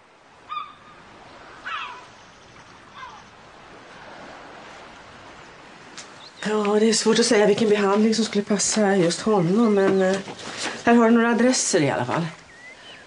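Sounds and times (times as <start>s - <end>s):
waves washing: 0.0s - 11.0s
short high bird calls: 0.5s - 1.0s, 1.6s - 3.4s.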